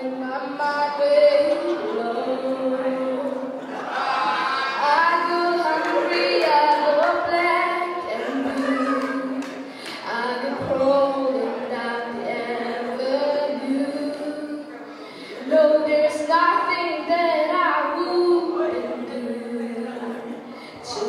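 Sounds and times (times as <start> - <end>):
boy singing into microphone: 0.0 - 3.6, 4.4 - 21.0.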